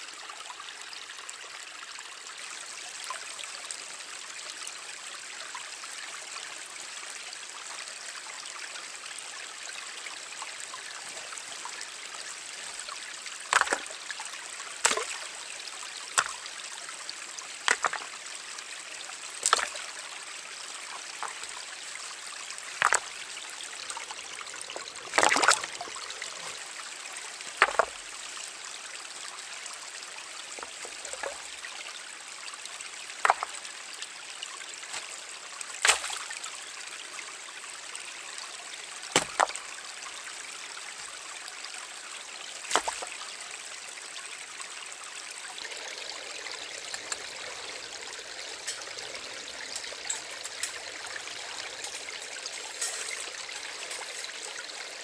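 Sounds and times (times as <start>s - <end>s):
stream trickling: 0.0s - 55.0s
camp gear knocks and clinks: 27.6s - 28.0s
camp gear rattle: 48.6s - 54.5s.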